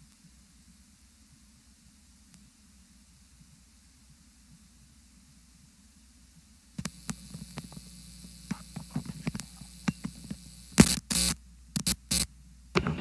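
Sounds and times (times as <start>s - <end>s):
faint electrical hum: 0.0s - 13.0s
sharp clicks and taps: 6.8s - 13.0s.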